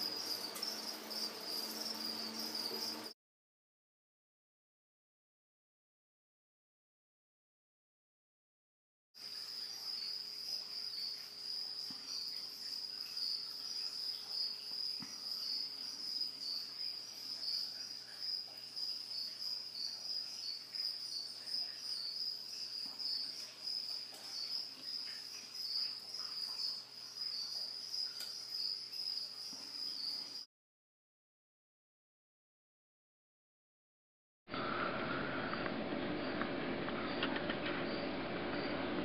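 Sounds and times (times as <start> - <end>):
crickets chirping: 0.0 - 3.2, 9.2 - 30.5, 34.7 - 38.9.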